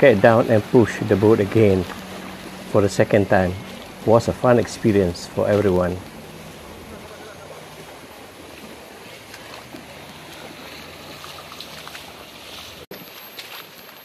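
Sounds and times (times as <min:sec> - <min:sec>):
river water rushing over rocks: 0:00.0 - 0:14.0
splashing of people wading: 0:00.0 - 0:14.0.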